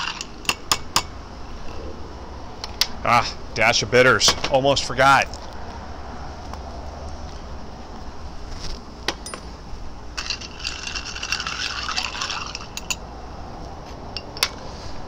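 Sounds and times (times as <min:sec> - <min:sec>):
ice cubes clinking in glass: 0:10.2 - 0:13.0.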